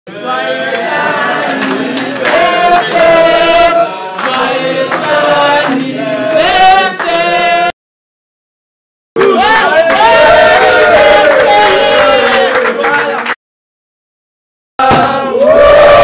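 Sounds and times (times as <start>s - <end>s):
group singing: 0.1s - 7.8s, 9.2s - 13.0s, 14.8s - 16.0s.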